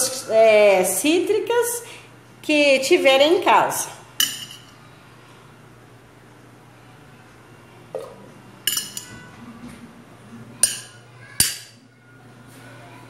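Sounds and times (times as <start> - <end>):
fork clinking against dishes: 8.7 - 9.2, 10.6 - 11.8.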